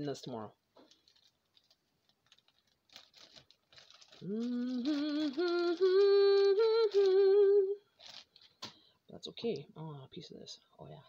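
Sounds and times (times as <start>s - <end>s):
plastic bag crinkling: 0.7s - 8.7s
woman humming: 4.2s - 7.8s.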